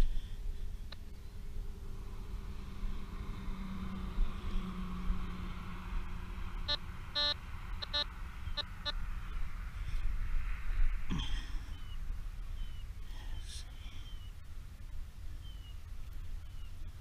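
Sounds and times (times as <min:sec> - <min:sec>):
steady low rumble: 0:00.0 - 0:17.0
metal detector beeps: 0:06.7 - 0:09.0.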